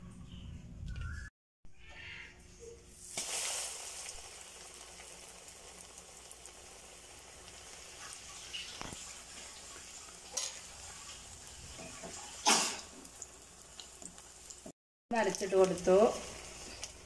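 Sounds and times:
oil sizzling in frying pan: 0:02.9 - 0:17.0.

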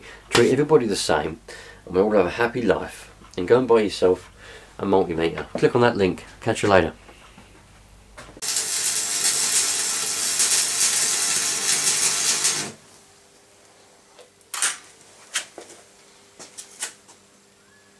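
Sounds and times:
welding arc crackling: 0:08.4 - 0:13.0.

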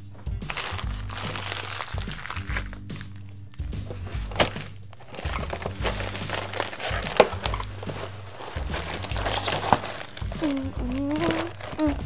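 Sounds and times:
plastic packaging crinkling: 0:00.5 - 0:12.0.

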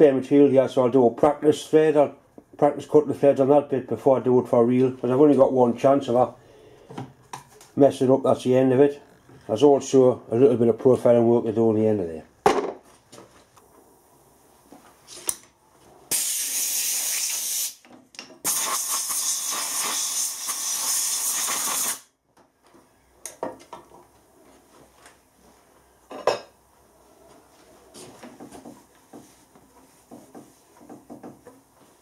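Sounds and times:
compressed air blow gun hissing: 0:16.1 - 0:17.8, 0:18.4 - 0:22.1.

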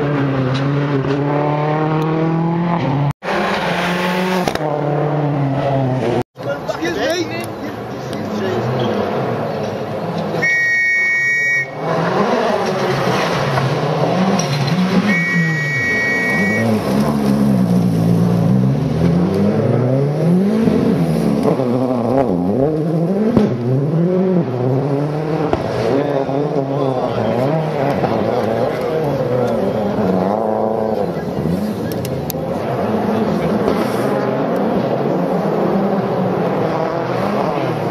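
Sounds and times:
rally car engine revving: 0:00.0 - 0:06.7, 0:07.7 - 0:10.6, 0:11.6 - 0:37.9
high whistle blasts: 0:10.4 - 0:11.8, 0:15.1 - 0:16.7.

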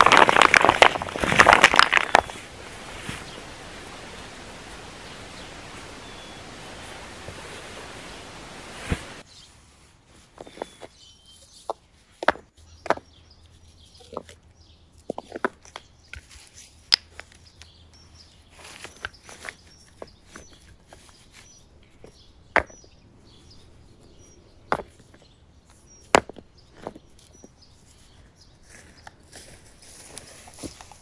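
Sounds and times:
rocks clacking together: 0:00.0 - 0:04.3, 0:11.6 - 0:13.1, 0:15.0 - 0:17.5, 0:18.7 - 0:23.0, 0:24.6 - 0:27.5.

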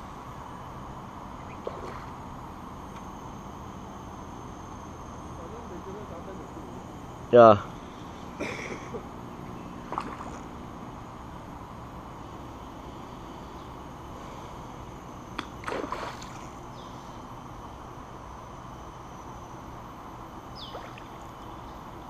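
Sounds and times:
steady outdoor hiss: 0:00.0 - 0:22.0
fish splashing in water: 0:09.9 - 0:10.5, 0:15.4 - 0:16.6.

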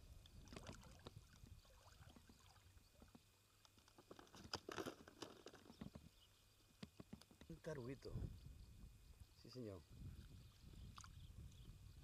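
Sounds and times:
faint clicks and rustles: 0:00.2 - 0:07.8.

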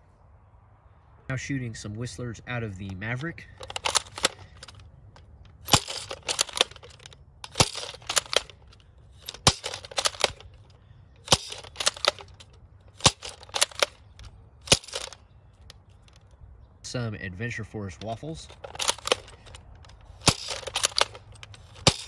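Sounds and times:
plastic clacks of priming slide: 0:03.6 - 0:16.4, 0:18.0 - 0:22.0
toy blaster firing darts: 0:20.2 - 0:22.0.

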